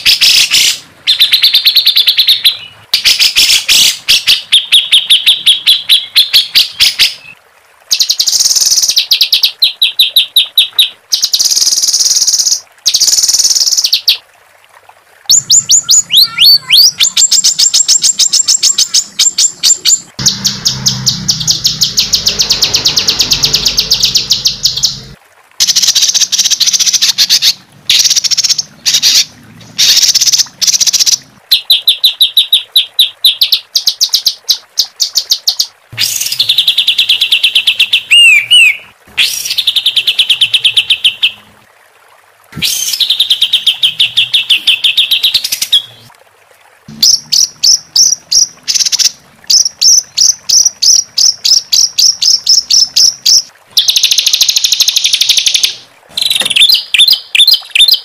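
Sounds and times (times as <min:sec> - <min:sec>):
songbird harsh notes and trills: 0:00.0 - 0:14.2, 0:15.3 - 0:41.4.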